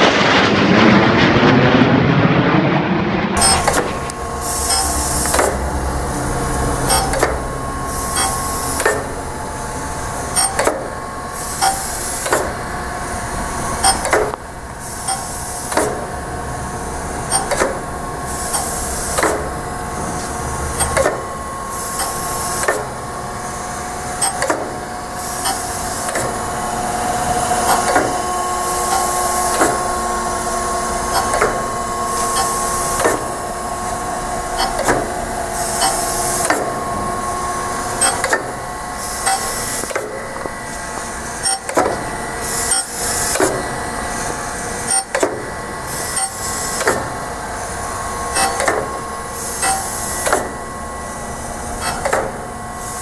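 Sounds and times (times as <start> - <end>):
low hum: 0.0 - 15.3
grinder machine whine: 3.4 - 53.0.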